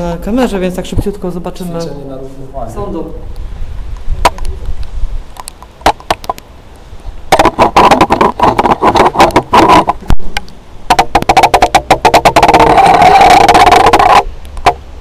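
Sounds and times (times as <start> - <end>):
wind buffeting microphone: 2.9 - 14.3
raindrops tapping on camera: 3.3 - 14.8.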